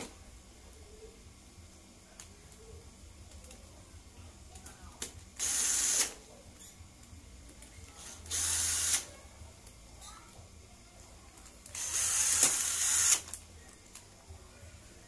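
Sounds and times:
cordless drill driving bolts: 0:05.4 - 0:06.2, 0:08.0 - 0:09.0, 0:11.7 - 0:13.3.

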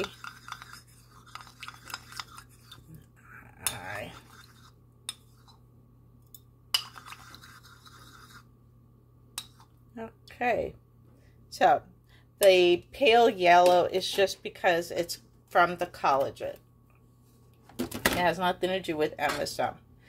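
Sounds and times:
spoon stirring in a ceramic bowl: 0:00.0 - 0:05.7, 0:06.3 - 0:08.5, 0:09.4 - 0:09.8.

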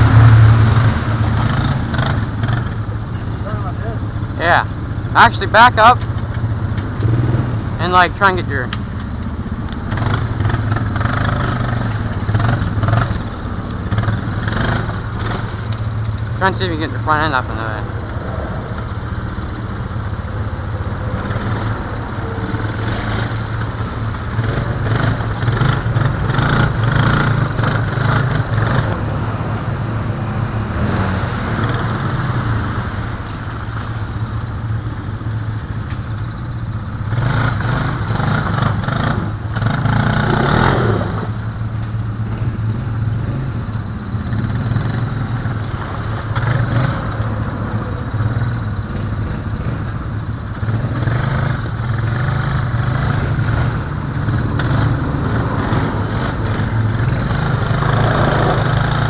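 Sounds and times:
atv engines running: 0:00.0 - 0:59.0.

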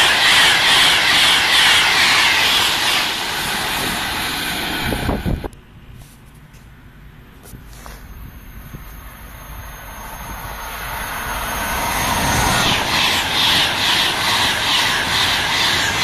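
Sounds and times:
high-speed train passing: 0:00.0 - 0:16.0.

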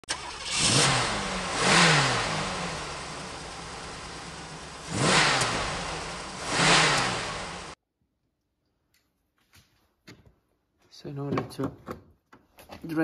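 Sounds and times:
car engine revving: 0:00.0 - 0:07.8.

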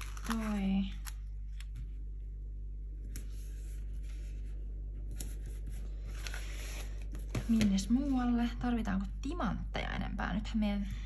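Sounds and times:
steady low hum: 0:00.0 - 0:11.0
paper sticker rustling: 0:03.0 - 0:08.1.

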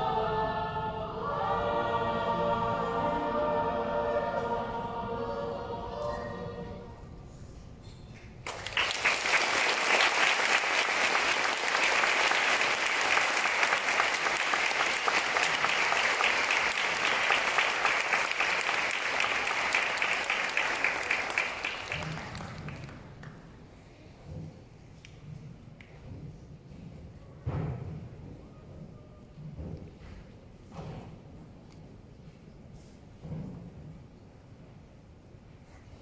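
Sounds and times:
choir singing chord: 0:00.0 - 0:07.2
audience applause: 0:08.4 - 0:23.2.

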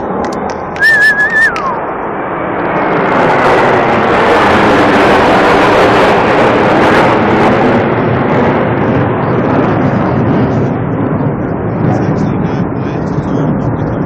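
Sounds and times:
jet fighters roaring overhead: 0:00.0 - 0:14.0
wavering whistle: 0:00.7 - 0:01.9.

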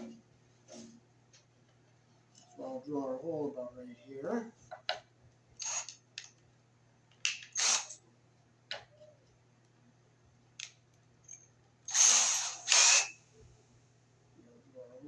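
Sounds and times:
drill chuck rasping: 0:05.6 - 0:06.0, 0:07.5 - 0:08.0, 0:11.9 - 0:13.2.

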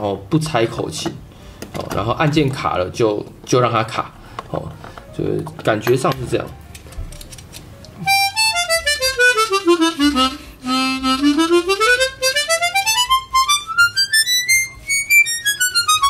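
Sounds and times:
harmonica note runs: 0:08.0 - 0:16.0.

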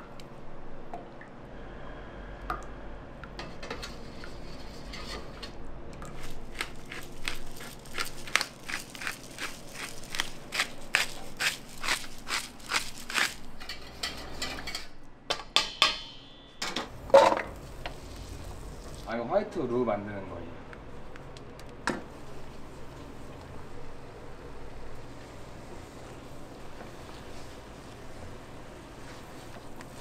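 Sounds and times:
knife cutting food crunching: 0:06.1 - 0:13.6.

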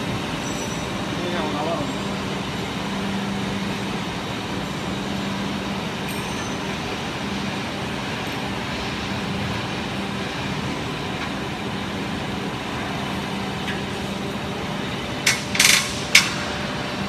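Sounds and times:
plate bending machine humming: 0:00.0 - 0:17.0.

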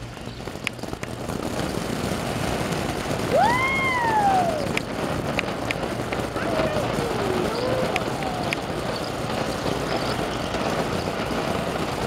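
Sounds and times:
firework fountain hissing: 0:00.0 - 0:12.0
sharp crackles: 0:00.0 - 0:12.0
long rising and falling tone: 0:03.2 - 0:04.8.

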